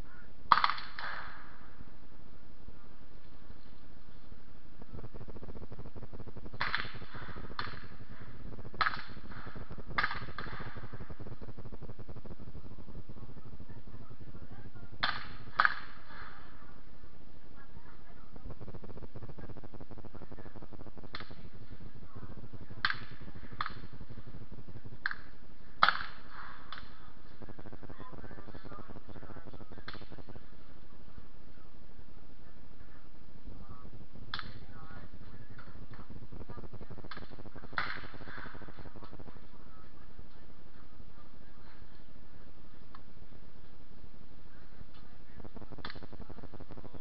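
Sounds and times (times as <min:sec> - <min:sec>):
low background rumble: 0:00.0 - 0:47.0
steady low hum: 0:00.0 - 0:47.0.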